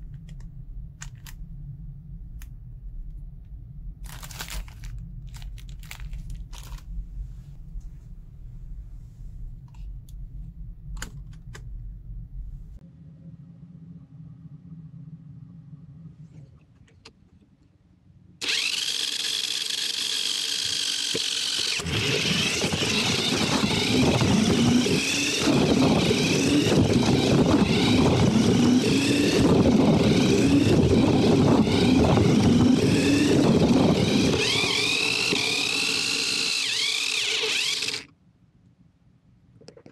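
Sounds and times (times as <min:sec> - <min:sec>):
engines revving: 0:18.4 - 0:38.1.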